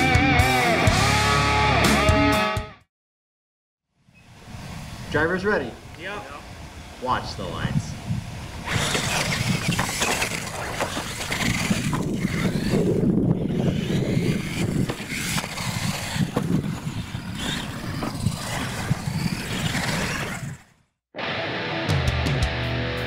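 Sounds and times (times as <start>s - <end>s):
toy truck motors running: 8.6s - 20.8s.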